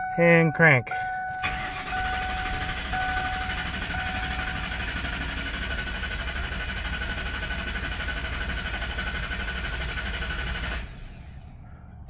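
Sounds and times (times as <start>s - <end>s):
starter cranking engine: 1.4s - 11.4s.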